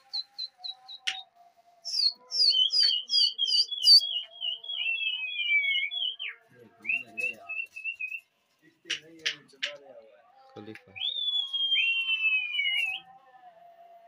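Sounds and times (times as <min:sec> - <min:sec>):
bird chirping: 0:00.0 - 0:08.2.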